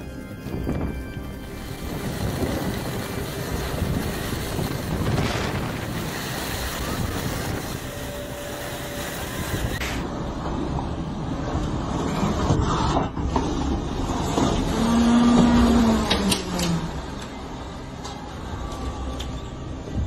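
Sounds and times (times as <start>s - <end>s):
strong wind buffeting microphone: 0.3s - 8.0s.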